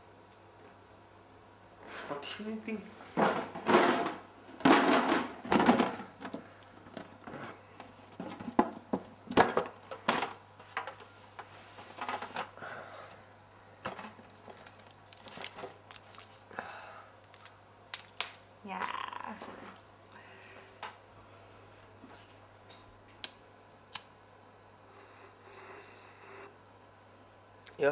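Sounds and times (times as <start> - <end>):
paper crinkling: 13.9 - 16.5, 17.2 - 18.4.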